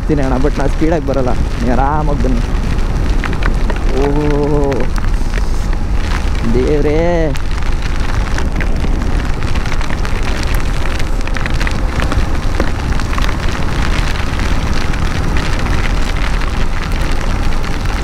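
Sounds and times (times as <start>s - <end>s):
heavy rain patter: 0.0s - 18.0s
wind and engine rumble: 0.0s - 18.0s.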